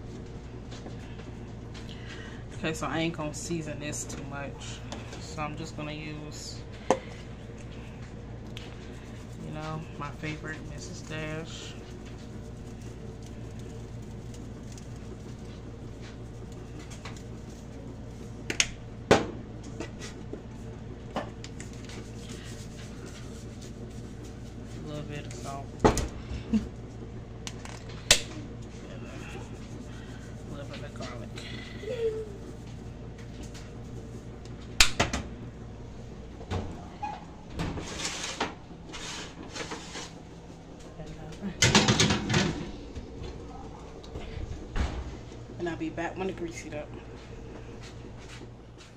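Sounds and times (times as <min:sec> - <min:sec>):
steady low hum: 0:00.0 - 0:48.9
baking sheet scraping on oven rack: 0:37.6 - 0:40.2.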